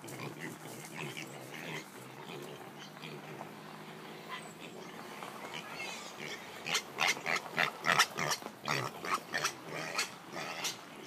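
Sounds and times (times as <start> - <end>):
piglet grunting: 0.0 - 3.5.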